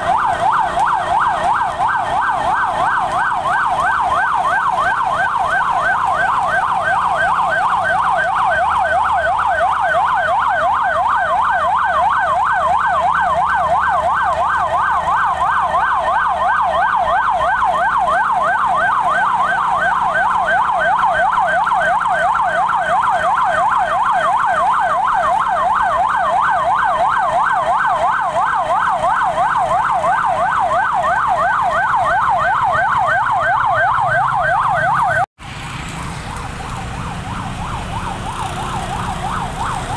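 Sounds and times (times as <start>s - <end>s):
emergency siren yelping: 0.0s - 35.3s, 36.0s - 39.9s.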